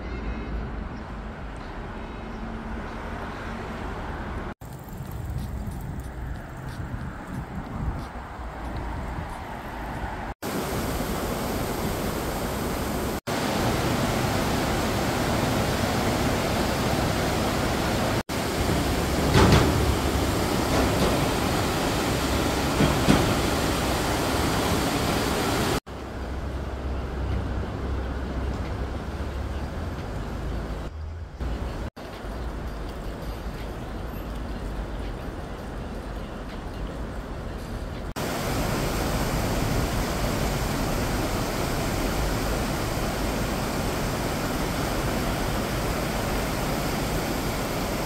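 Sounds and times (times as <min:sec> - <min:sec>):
street traffic ambience: 0:00.0 - 0:48.0
river water rushing over rocks: 0:10.0 - 0:25.8, 0:38.2 - 0:48.0.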